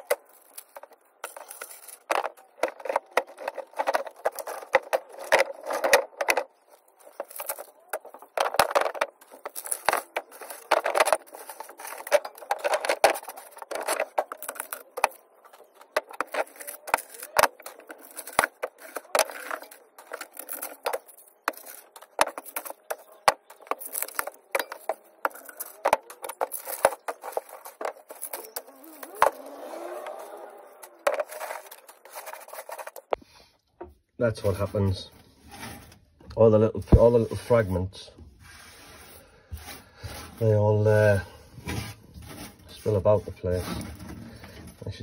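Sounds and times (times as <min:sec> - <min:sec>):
metal wires clattering on wood: 0:00.0 - 0:33.2, 0:39.5 - 0:45.0.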